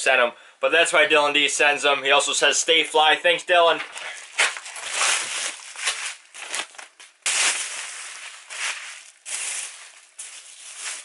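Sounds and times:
bubble wrap and plastic crinkling: 0:03.8 - 0:11.0.

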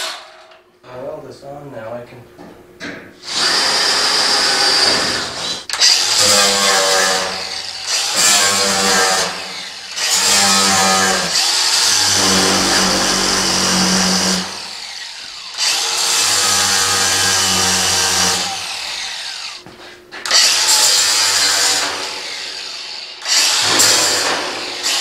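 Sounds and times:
angle grinder grinding steel: 0:06.4 - 0:18.9.

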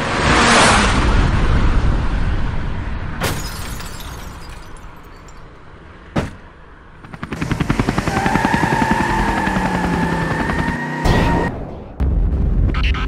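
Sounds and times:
dying car-like noise: 0:06.2 - 0:11.5
helicopter rotor chop with whine: 0:07.0 - 0:11.5.

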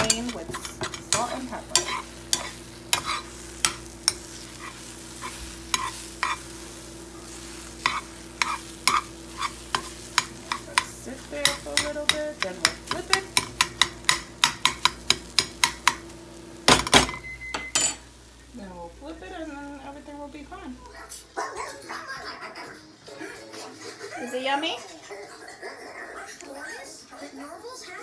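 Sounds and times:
spoon scraping frying pan: 0:00.0 - 0:16.1
faint sizzle: 0:00.0 - 0:28.0.

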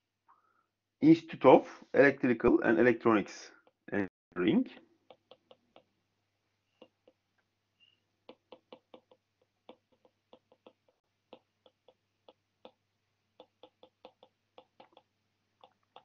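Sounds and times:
stylus tapping on pen tablet: 0:04.6 - 0:06.0, 0:06.7 - 0:07.4, 0:08.2 - 0:16.0.

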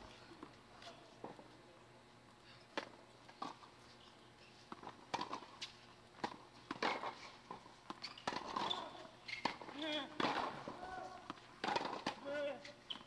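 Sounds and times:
tennis ball bouncing on court: 0:07.9 - 0:12.4.

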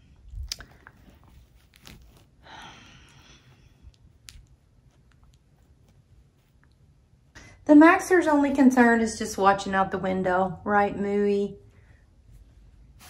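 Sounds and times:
fabric rustle: 0:00.7 - 0:02.5.

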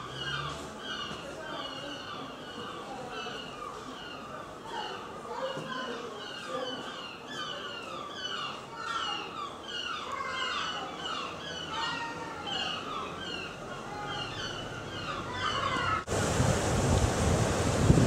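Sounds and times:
gulls calling: 0:00.0 - 0:16.2
waves breaking on shore: 0:16.0 - 0:18.0
wind on microphone: 0:16.1 - 0:18.0.

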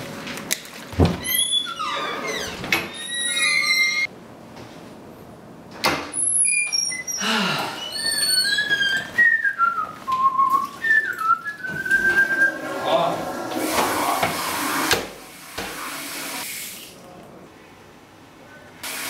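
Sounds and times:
person whistling a tune: 0:09.2 - 0:12.6.

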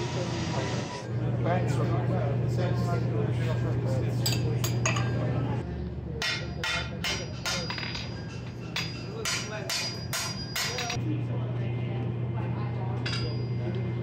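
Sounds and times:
hammer striking steel on anvil: 0:06.2 - 0:11.0.

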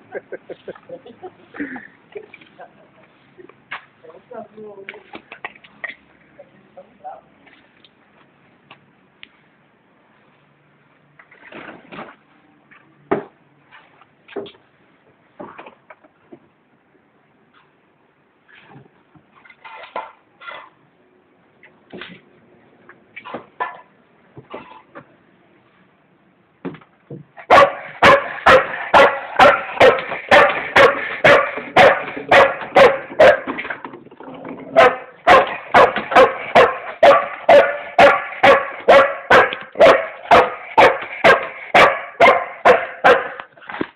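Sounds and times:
dog barking: 0:27.5 - 0:33.5, 0:34.7 - 0:43.4.

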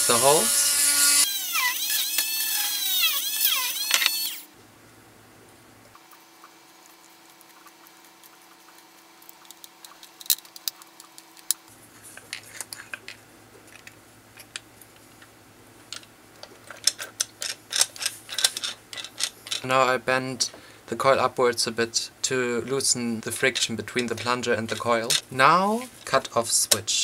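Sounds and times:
screwdriver and metal parts tapping: 0:15.9 - 0:19.7, 0:23.3 - 0:25.3.

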